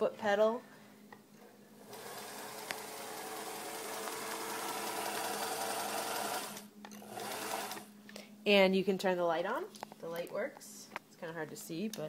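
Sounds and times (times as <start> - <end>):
sewing machine whirring and clattering: 1.8 - 7.9.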